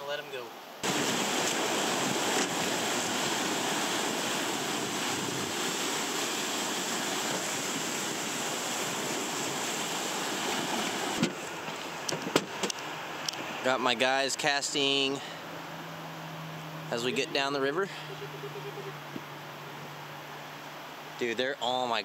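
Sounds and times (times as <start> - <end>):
river rapids rushing: 0.8 - 12.1.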